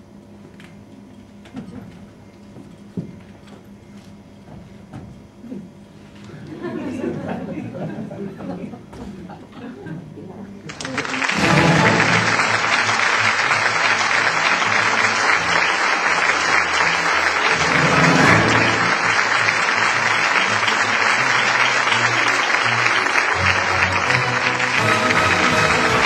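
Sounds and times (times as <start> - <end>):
audience applauding: 10.7 - 26.0.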